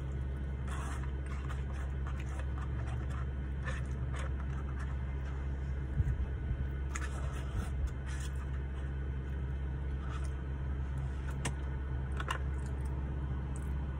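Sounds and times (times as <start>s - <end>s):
car engine idling hum: 0.0s - 13.9s
plastic fork scraping paper tray: 0.5s - 5.6s, 6.9s - 9.0s, 9.9s - 10.4s.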